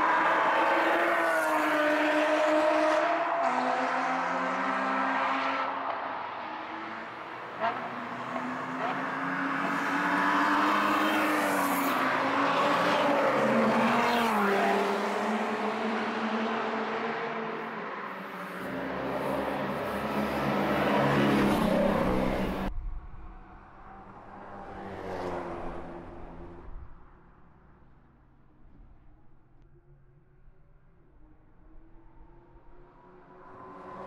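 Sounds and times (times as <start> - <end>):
car engines revving: 0.0 - 22.7, 31.2 - 34.0.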